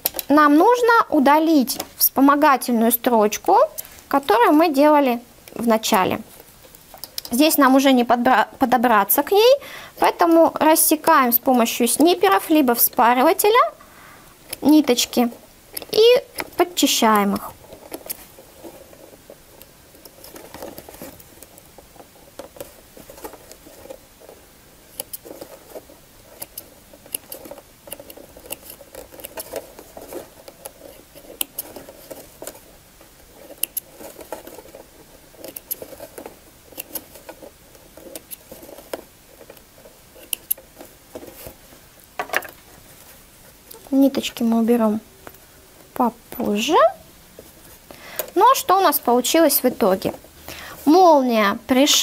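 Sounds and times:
fabric rustling: 0:14.6 - 0:51.2.

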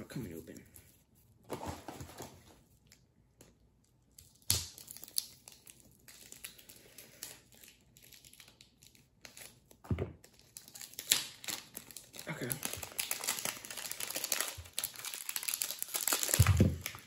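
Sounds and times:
plastic packaging crinkling: 0:04.8 - 0:17.0.

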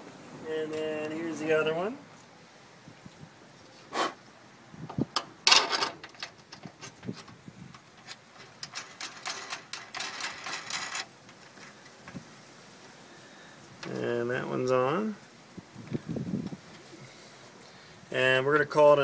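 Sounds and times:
small metal clicks: 0:05.2 - 0:12.0.

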